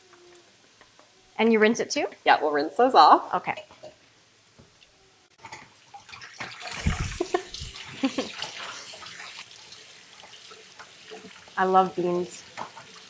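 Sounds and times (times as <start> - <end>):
tap water splashing: 5.4 - 11.6, 12.5 - 13.0
low thuds: 6.8 - 7.8.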